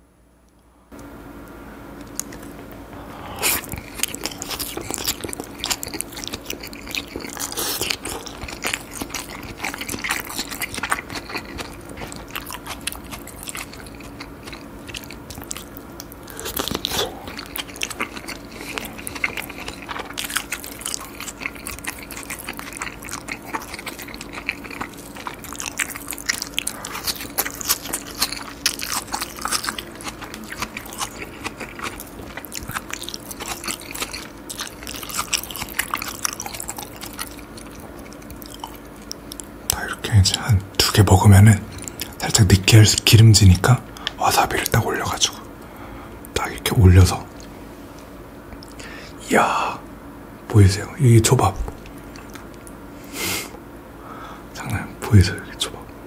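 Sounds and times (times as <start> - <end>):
close chewing and biting: 2.0 - 2.6, 3.4 - 45.5, 51.6 - 52.8
crisp crunches: 3.4 - 40.0.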